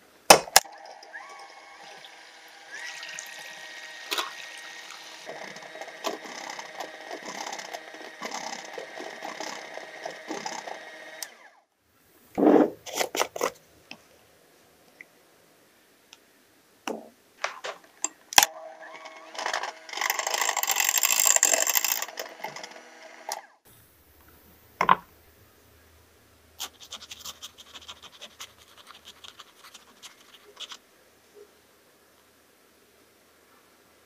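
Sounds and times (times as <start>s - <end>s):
electric hand mixer whipping: 0.9s - 11.4s, 18.6s - 23.4s.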